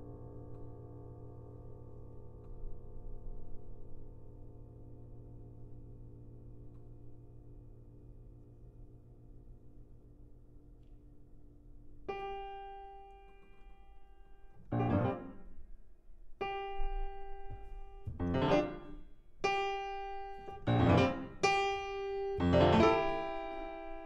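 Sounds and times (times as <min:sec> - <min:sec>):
loud low piano chord: 0:12.0 - 0:15.8, 0:16.4 - 0:24.0
piano note ringing: 0:12.0 - 0:15.8, 0:16.4 - 0:24.0.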